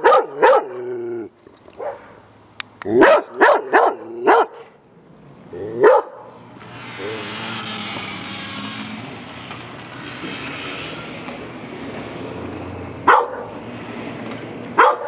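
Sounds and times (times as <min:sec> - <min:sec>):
dog barking: 0:00.0 - 0:00.8, 0:01.8 - 0:02.2, 0:03.0 - 0:04.7, 0:05.8 - 0:06.3, 0:13.1 - 0:13.6, 0:14.8 - 0:15.0.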